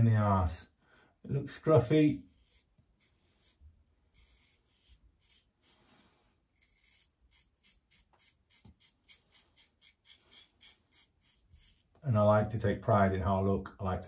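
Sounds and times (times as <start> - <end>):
razor scraping stubble: 1.6 - 12.0.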